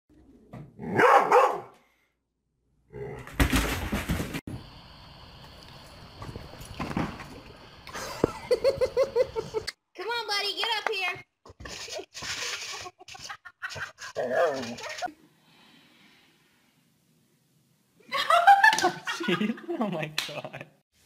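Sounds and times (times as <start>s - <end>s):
dog barking: 0.8s - 1.8s.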